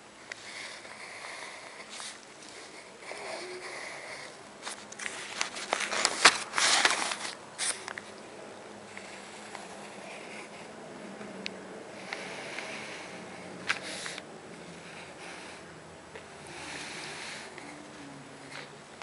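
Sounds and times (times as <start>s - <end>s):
paper rustling: 4.6s - 8.2s.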